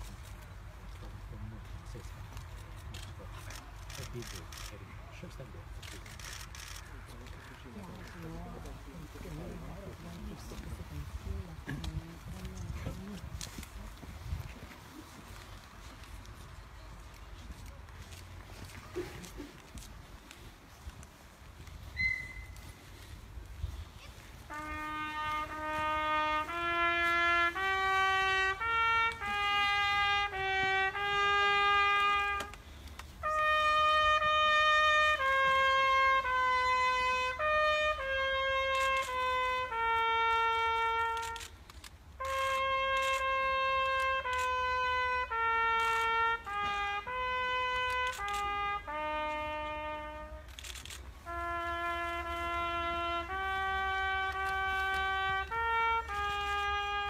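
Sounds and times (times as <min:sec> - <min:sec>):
solo trumpet slow melody: 0:17.0 - 0:57.0.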